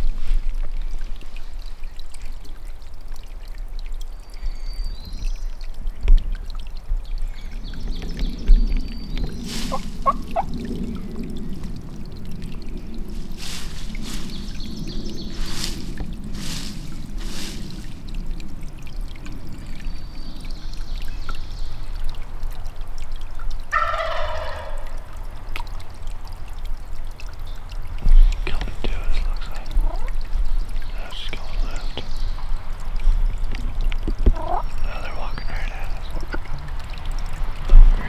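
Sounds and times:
low rushing background: 0:06.8 - 0:22.6
turkey gobbling: 0:09.5 - 0:10.5, 0:23.7 - 0:25.0, 0:34.3 - 0:34.6.

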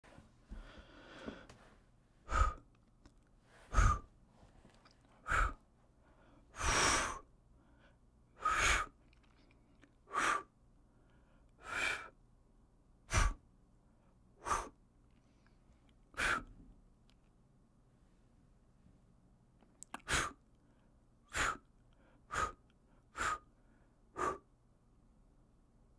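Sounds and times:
soft breath: 0:00.0 - 0:02.7, 0:03.4 - 0:12.2, 0:13.1 - 0:16.6, 0:20.0 - 0:24.5
person blowing puffs of air: 0:02.3 - 0:02.7, 0:03.6 - 0:04.1, 0:05.2 - 0:05.6, 0:06.6 - 0:07.3, 0:08.4 - 0:09.0, 0:13.1 - 0:13.4, 0:14.4 - 0:14.8, 0:16.2 - 0:16.5, 0:20.0 - 0:20.4, 0:21.3 - 0:21.7, 0:22.3 - 0:22.6, 0:23.2 - 0:23.5, 0:24.2 - 0:24.5.

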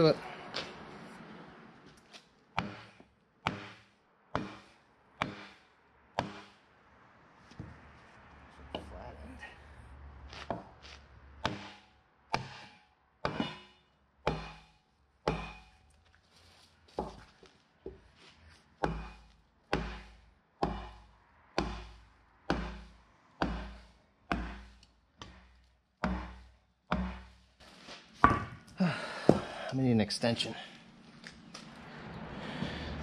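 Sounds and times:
sledgehammer thunks on wooden block: 0:02.6 - 0:05.6, 0:12.4 - 0:15.8, 0:18.8 - 0:27.4, 0:28.2 - 0:28.6.

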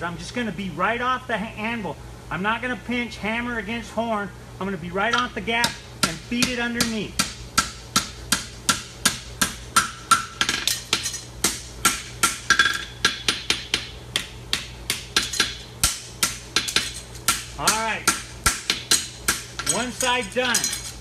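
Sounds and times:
hammer striking hot horseshoe: 0:05.1 - 0:21.0.

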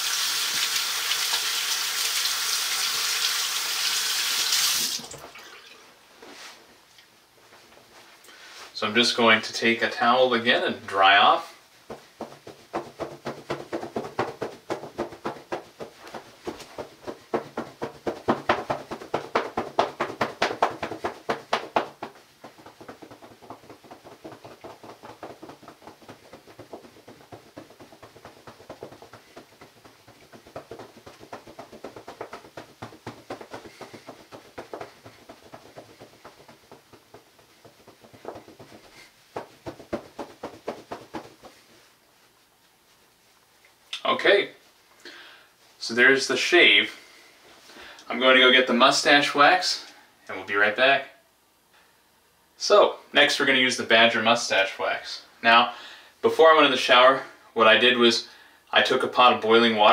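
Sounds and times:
towel scrubbing face and head: 0:00.0 - 0:05.2, 0:11.6 - 0:43.4.

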